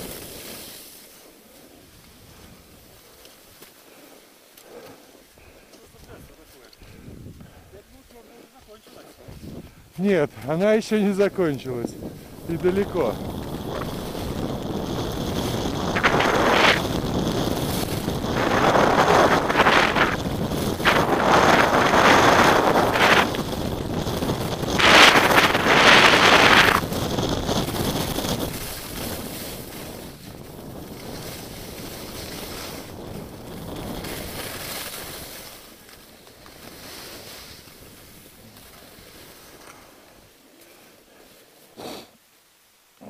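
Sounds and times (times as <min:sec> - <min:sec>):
skis hissing and scraping on snow: 0:00.0 - 0:42.3
wind rushing across microphone: 0:05.4 - 0:08.0, 0:09.2 - 0:40.4.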